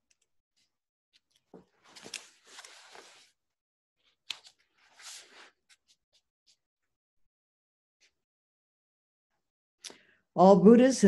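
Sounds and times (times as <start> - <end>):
paper pages rustling: 0.6 - 3.4, 4.0 - 6.6.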